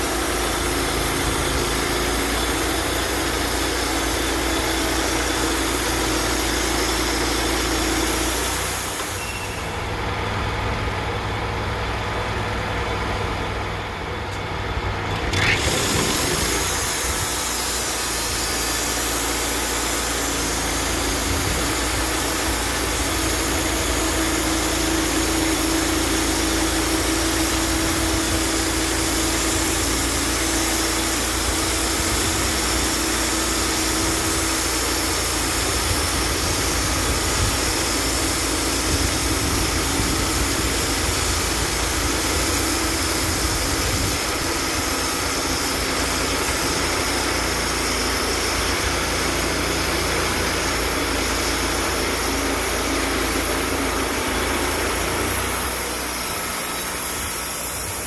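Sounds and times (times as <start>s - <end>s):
sawmill engine running: 0.0s - 58.0s
band blade sawing log: 15.1s - 58.0s.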